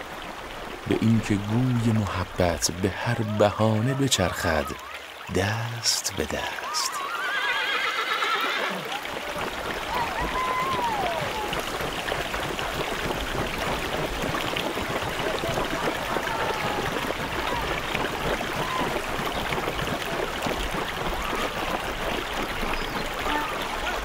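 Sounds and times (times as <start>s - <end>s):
rushing river water: 0.0s - 24.0s
hooves splashing in water: 6.0s - 24.0s.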